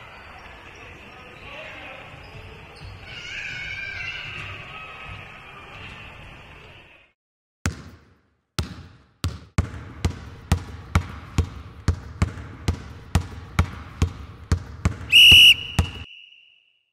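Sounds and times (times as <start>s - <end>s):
basketball dribbling: 7.7s - 16.1s.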